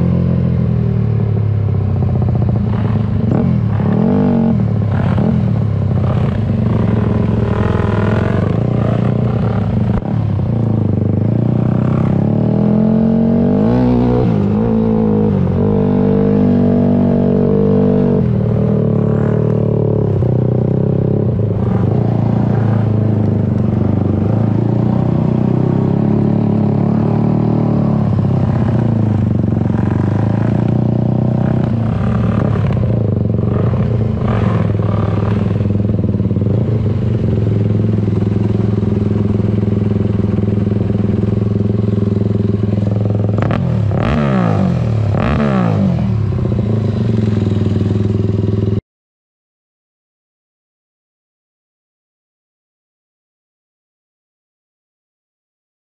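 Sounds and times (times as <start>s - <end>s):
dirt bike engine revving: 2.7s - 10.1s, 23.8s - 48.8s.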